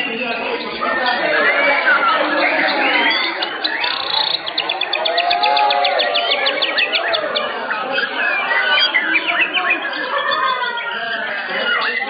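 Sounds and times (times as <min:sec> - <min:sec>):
bird singing whistled phrases: 0:01.2 - 0:10.0.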